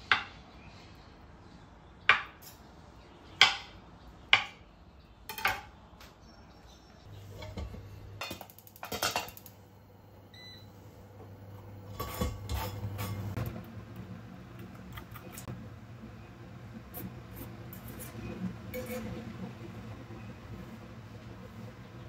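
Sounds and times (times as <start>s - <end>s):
steady low hum: 7.0s - 22.0s.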